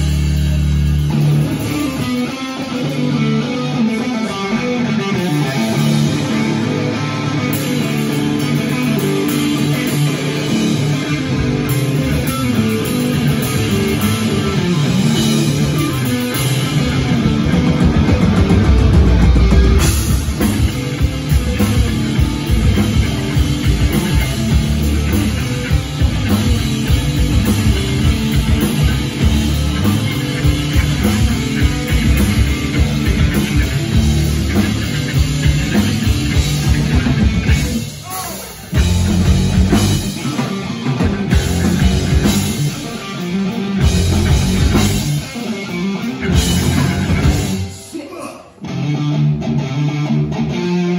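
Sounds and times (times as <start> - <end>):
drum kit: 0.0 - 48.3
bass guitar: 0.0 - 50.9
electric guitar riffing: 0.0 - 50.9.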